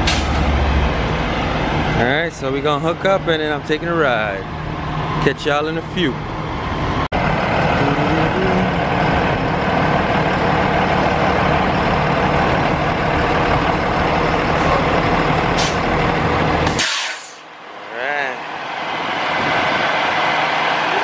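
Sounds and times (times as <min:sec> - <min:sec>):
diesel engine idling: 0:00.0 - 0:21.0
air brake hisses: 0:16.7 - 0:17.5.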